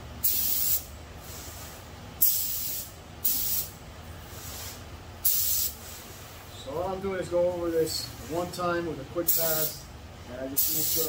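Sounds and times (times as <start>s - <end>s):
air compressor humming: 0.0s - 11.0s
spray gun hissing: 0.2s - 3.7s, 4.3s - 6.2s, 9.3s - 9.8s, 10.6s - 11.0s.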